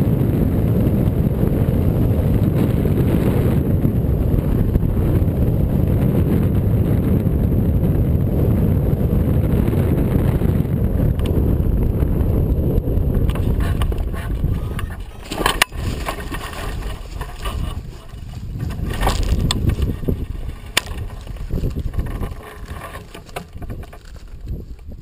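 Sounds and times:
wind rushing over camera: 0:00.0 - 0:25.0
rustling of dry stubble: 0:13.1 - 0:25.0.

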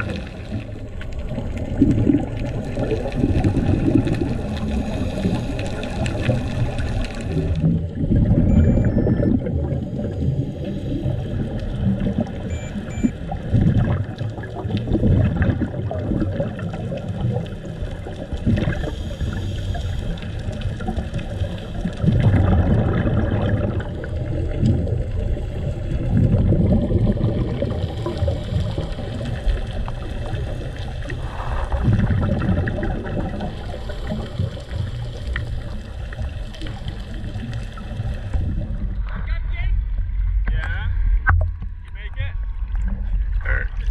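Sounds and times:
diver exhaling bubbles: 0:00.0 - 0:39.3, 0:42.7 - 0:43.9
watery background: 0:00.0 - 0:43.9.

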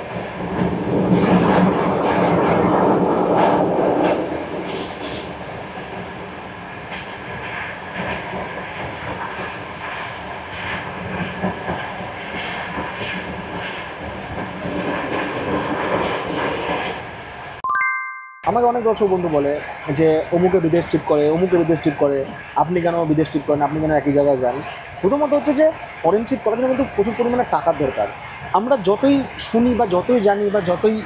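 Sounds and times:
train wheels clattering on rails: 0:00.1 - 0:17.0.

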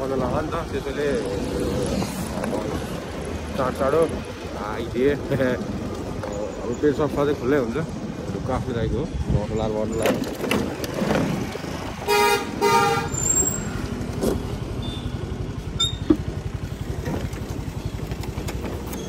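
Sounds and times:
horn toots: 0:12.0 - 0:13.7
scooter engine idling: 0:13.9 - 0:19.0.

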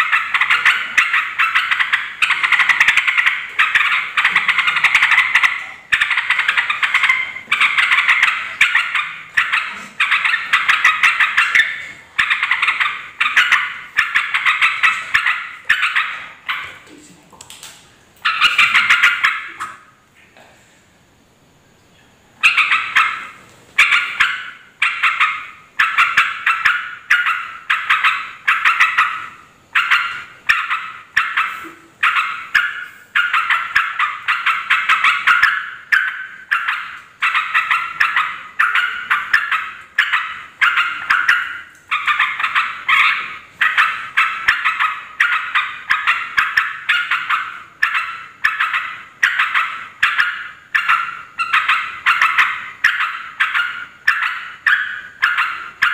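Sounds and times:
bird chattering calls: 0:00.0 - 0:16.9, 0:18.2 - 0:19.9, 0:22.4 - 0:55.9.

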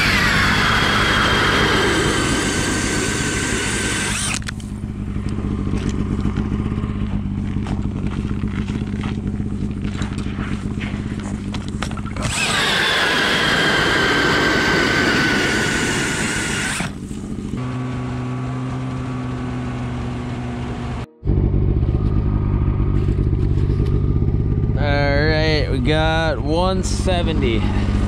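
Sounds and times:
drill whining: 0:00.0 - 0:04.8, 0:12.0 - 0:17.1
knocks and scraping: 0:04.2 - 0:12.4.

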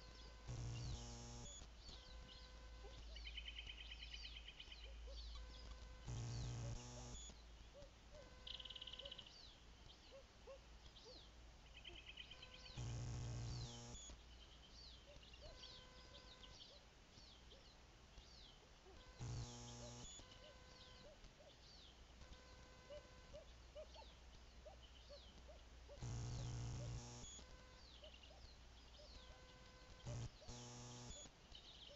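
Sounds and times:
camera electronic buzz: 0:00.0 - 0:03.2, 0:05.3 - 0:07.4, 0:08.2 - 0:09.2, 0:12.3 - 0:14.2, 0:15.4 - 0:16.6, 0:19.0 - 0:21.2, 0:22.2 - 0:23.4, 0:25.4 - 0:28.1, 0:29.0 - 0:31.4
small birds chirping: 0:00.0 - 0:31.9.

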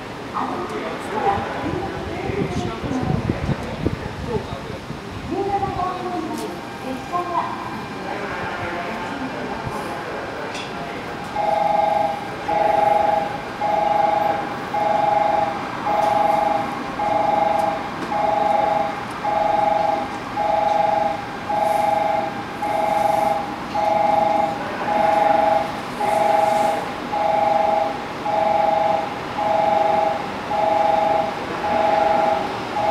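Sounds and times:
two-note electronic warning tone: 0:11.4 - 0:32.9.

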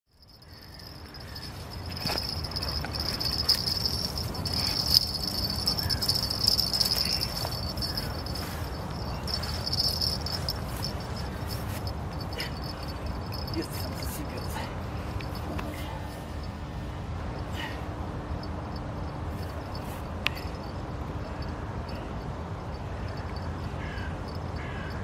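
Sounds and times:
insects chirring: 0:00.1 - 0:17.5, 0:18.2 - 0:25.0.

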